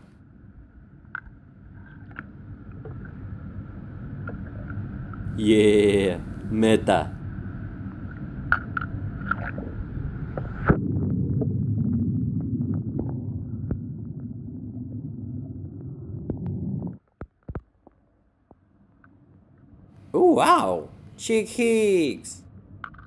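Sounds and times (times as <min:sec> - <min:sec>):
muffled underwater rumble: 0:00.2 - 0:17.0.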